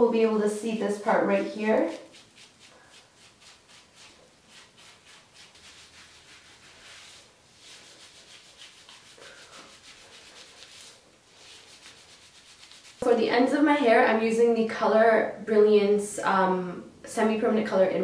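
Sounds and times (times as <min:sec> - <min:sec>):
hands rubbing wet hair: 0:00.9 - 0:13.1.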